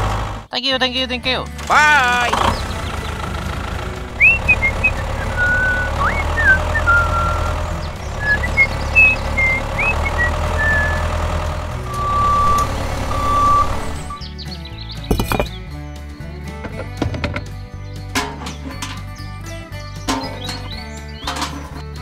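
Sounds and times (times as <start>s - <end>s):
tractor engine rumbling: 0.0s - 22.0s
high whistled chirps: 4.2s - 11.2s, 11.8s - 15.6s
steady beep tone: 11.9s - 14.2s.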